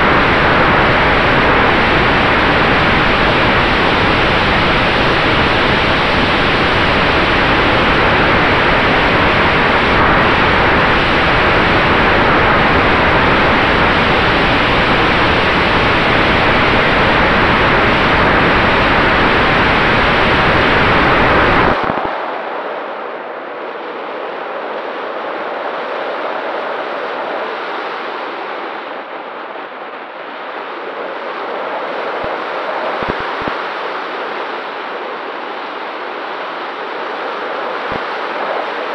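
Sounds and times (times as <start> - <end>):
wind rush and propeller wash: 0.0 - 38.9.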